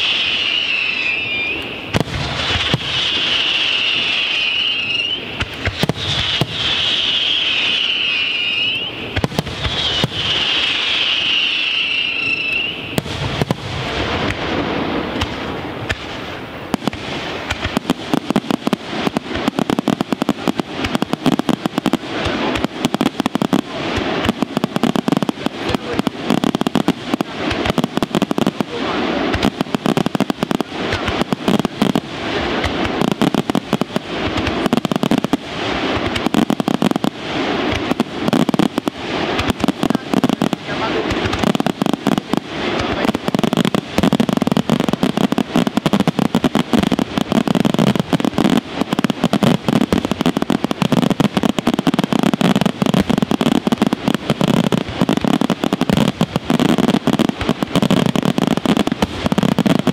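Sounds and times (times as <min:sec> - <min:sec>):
wavering firework whistle: 0:00.0 - 0:14.4
firework shells bursting: 0:00.0 - 0:28.7, 0:29.3 - 0:59.9.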